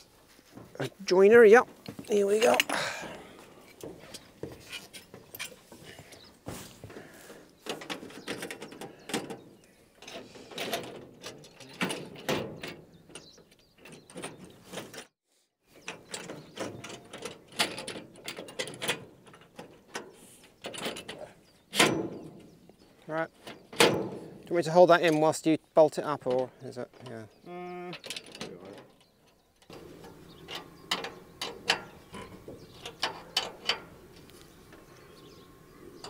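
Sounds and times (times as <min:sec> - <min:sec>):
metal rail clicking and sliding: 0:28.1 - 0:34.9.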